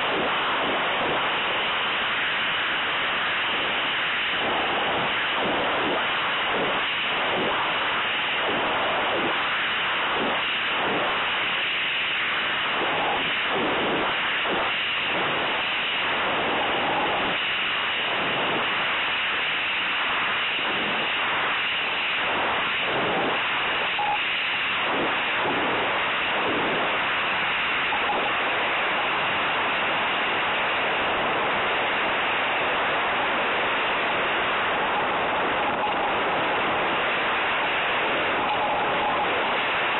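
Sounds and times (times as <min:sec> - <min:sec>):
air rushing over microphone: 0:21.9 - 0:39.9.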